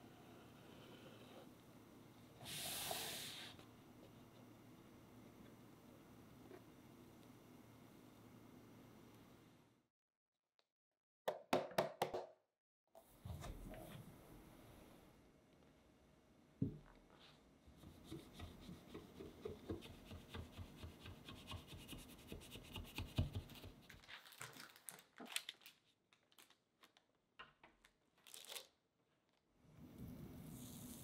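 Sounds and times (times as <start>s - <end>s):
parchment paper crinkling: 23.9s - 27.1s.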